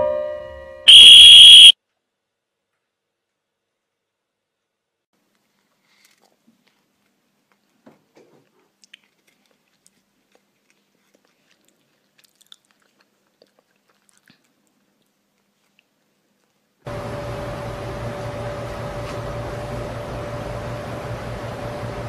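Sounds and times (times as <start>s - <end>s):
cat crunching a treat: 8.7s - 16.7s.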